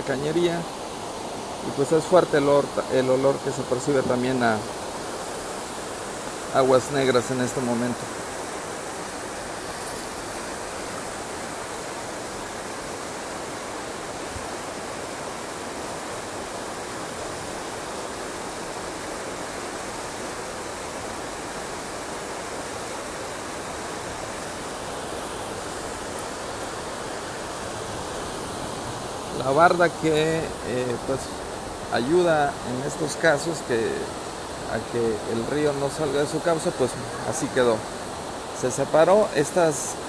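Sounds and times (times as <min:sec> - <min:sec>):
river rushing over rocks: 0:00.0 - 0:40.0.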